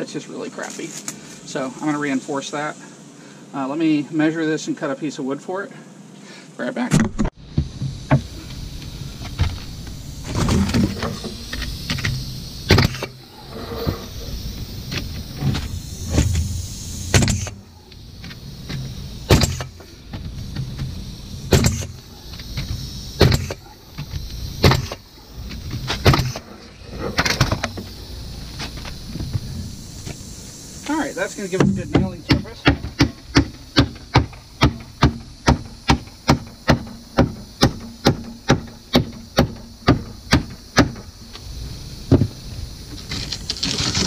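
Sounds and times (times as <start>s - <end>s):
nail gun motor whirring: 14.9s - 20.6s
nail gun shots: 17.1s - 17.6s, 19.3s - 19.7s, 21.5s - 21.9s, 23.2s - 23.6s.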